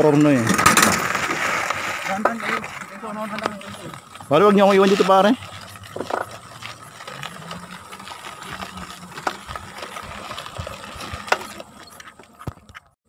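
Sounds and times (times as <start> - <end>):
bicycle rattling and clicking: 0.0 - 13.0.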